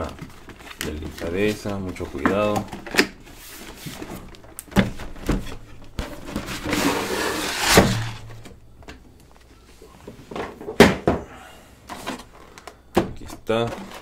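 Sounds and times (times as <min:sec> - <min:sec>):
plastic tray scraping out of box: 0:06.1 - 0:08.3.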